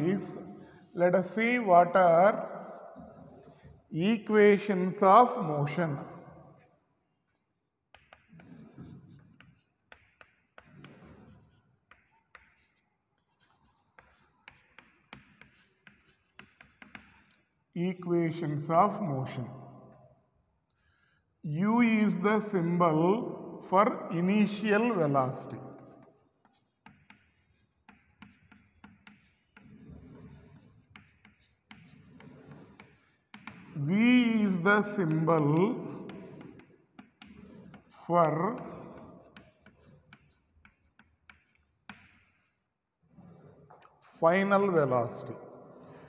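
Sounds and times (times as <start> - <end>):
chalk scratching on chalkboard: 0.0 - 4.0, 5.2 - 19.0, 24.4 - 46.0
chalk tapping on board: 7.3 - 17.5, 25.7 - 42.6.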